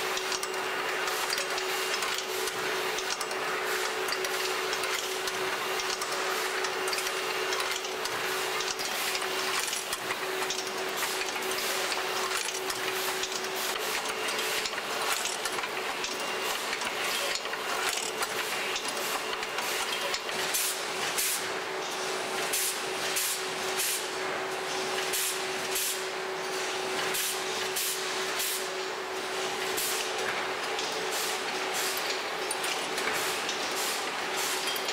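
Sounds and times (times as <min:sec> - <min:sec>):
machine hum with constant tone: 0:00.0 - 0:34.9.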